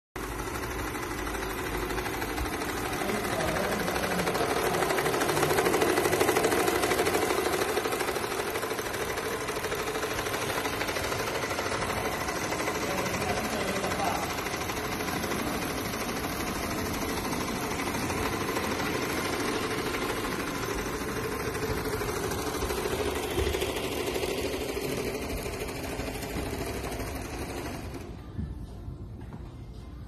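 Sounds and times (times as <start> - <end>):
sewing machine stitching: 0.2 - 28.2.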